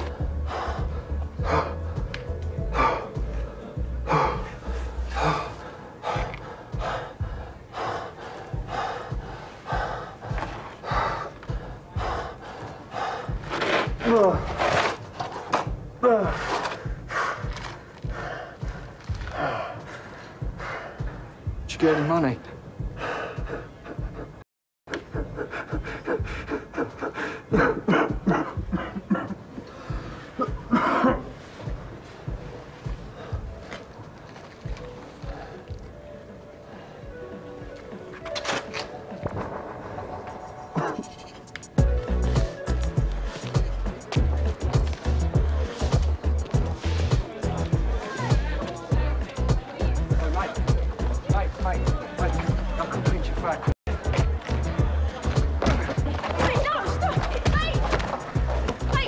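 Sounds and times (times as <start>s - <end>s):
person gasping for breath: 25.1s - 31.4s.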